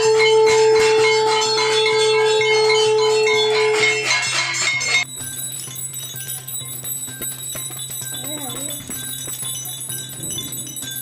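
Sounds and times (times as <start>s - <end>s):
conch shell blown: 0.0s - 4.1s.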